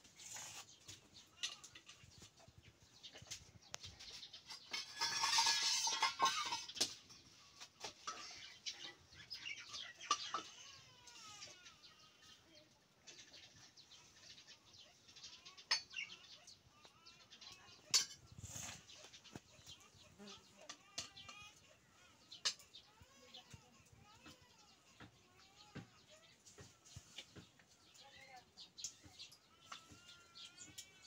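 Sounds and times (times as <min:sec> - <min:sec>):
birds calling: 0:00.0 - 0:31.0
ladle clinking against pots: 0:04.5 - 0:07.0, 0:17.9 - 0:18.2.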